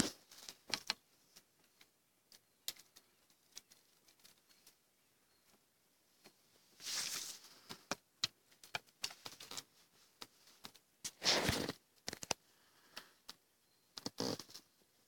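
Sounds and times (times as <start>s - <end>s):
short rustles: 6.7s - 7.8s.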